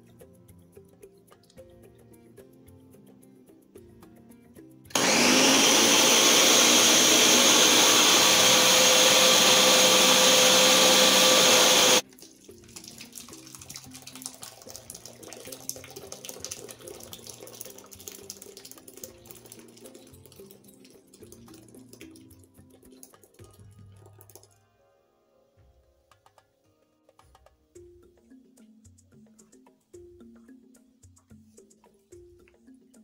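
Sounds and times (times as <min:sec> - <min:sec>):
blender running: 0:04.9 - 0:12.0
juice pouring through strainer: 0:05.0 - 0:24.6.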